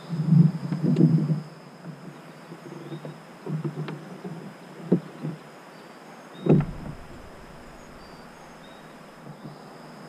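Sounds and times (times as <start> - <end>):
faint chirps: 5.8 - 9.8
high insect drone: 6.2 - 10.0
loud knock: 6.5 - 8.9
low rumble: 6.5 - 9.2.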